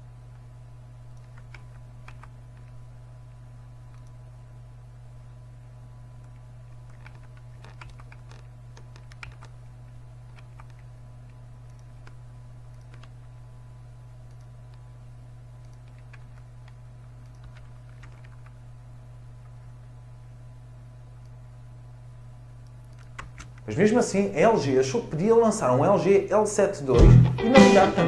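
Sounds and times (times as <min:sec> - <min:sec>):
low steady hum: 0:00.0 - 0:28.0
keyboard typing: 0:01.1 - 0:02.8, 0:06.8 - 0:09.6, 0:10.3 - 0:10.9, 0:11.7 - 0:13.2, 0:15.6 - 0:18.6, 0:22.8 - 0:23.6.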